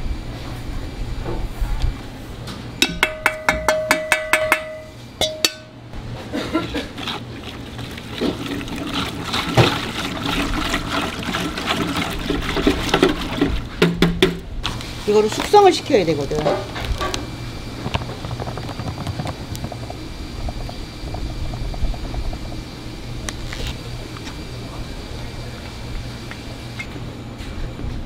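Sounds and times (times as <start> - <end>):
steady hum: 0.0 - 28.0
water sloshing: 6.7 - 13.9.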